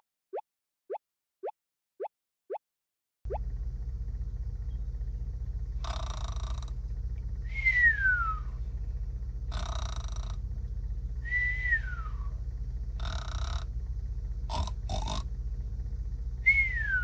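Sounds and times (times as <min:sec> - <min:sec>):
steady low hum: 0:03.3 - 0:17.0
falling whistle: 0:07.5 - 0:08.6, 0:11.2 - 0:12.3, 0:16.4 - 0:17.0
cartoon snoring: 0:09.5 - 0:10.4, 0:14.5 - 0:15.3.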